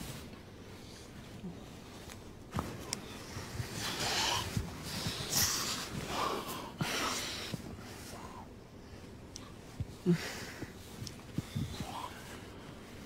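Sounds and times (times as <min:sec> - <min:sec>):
heavy breathing: 0:03.0 - 0:13.0
soft lip clicks: 0:09.3 - 0:09.5, 0:11.0 - 0:12.0.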